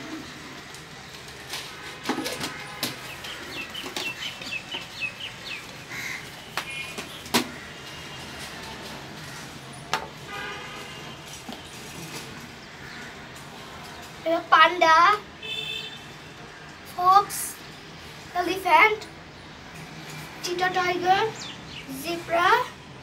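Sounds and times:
birds chirping: 1.7s - 8.5s, 19.3s - 22.6s.

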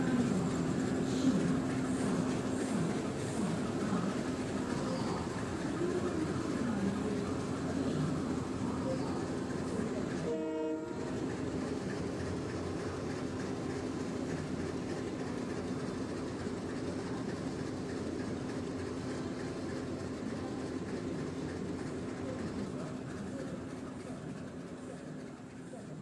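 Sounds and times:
running train rumble: 0.0s - 26.0s
diesel locomotive horn: 10.1s - 11.4s.

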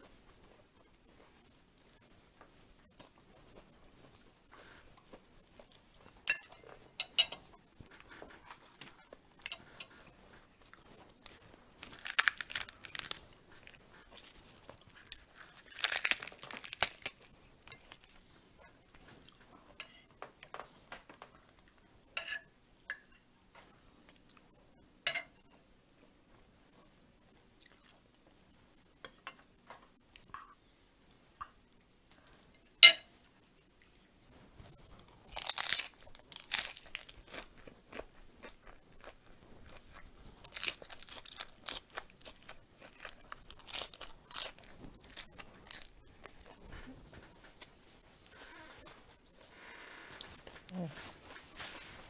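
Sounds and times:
cutlery clinking on plate: 6.2s - 7.5s, 19.8s - 20.1s, 22.2s - 23.2s, 25.0s - 25.5s, 32.8s - 33.1s
crisp crunching crinkling: 10.7s - 18.2s, 35.0s - 52.0s.

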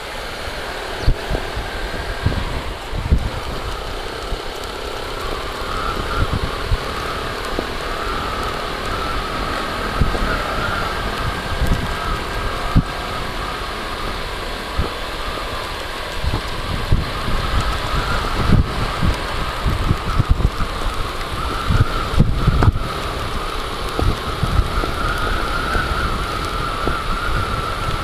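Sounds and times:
motorcycle engine humming: 0.0s - 28.0s
wind buffeting microphone: 0.0s - 28.0s.

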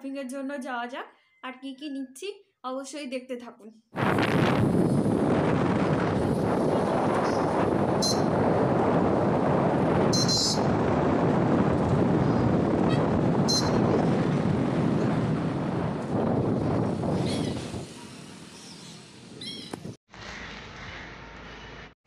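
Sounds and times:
wind rushing over microphone: 4.0s - 20.0s
motorbike road and engine noise: 4.8s - 20.4s
short high chirps: 8.0s - 8.3s, 10.1s - 10.6s, 13.5s - 13.8s.

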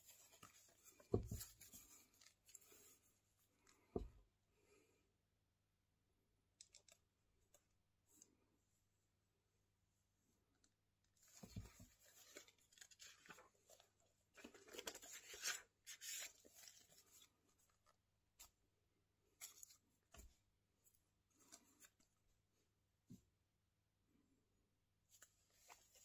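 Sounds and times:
paper rustling and crinkling: 0.0s - 3.1s, 11.2s - 18.5s, 19.4s - 20.3s, 25.1s - 26.0s.

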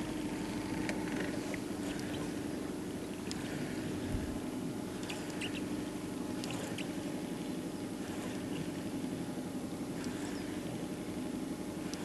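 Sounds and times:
outboard motor humming: 0.0s - 12.0s
faint ticks: 3.2s - 3.5s, 5.0s - 5.6s, 6.4s - 6.9s, 10.0s - 10.4s.

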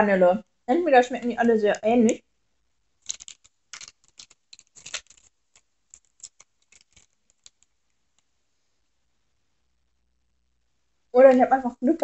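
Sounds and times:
plastic wrapper crinkling: 2.9s - 8.3s.

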